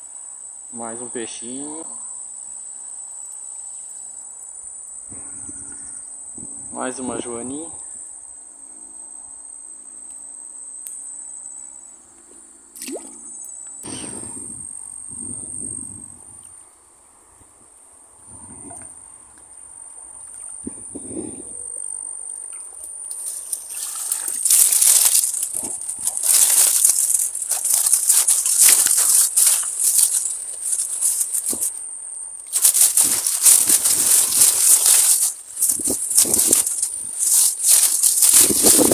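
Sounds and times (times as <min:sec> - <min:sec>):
insects buzzing: 0:00.0 - 0:38.9
rustling of tall grass: 0:23.0 - 0:31.8, 0:32.5 - 0:38.9.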